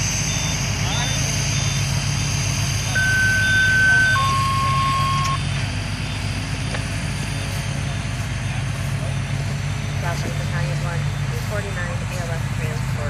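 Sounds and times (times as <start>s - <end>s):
high electronic tone stepping down: 0.0s - 5.4s
engine running: 0.0s - 13.0s
faint short beeps: 2.9s - 5.4s.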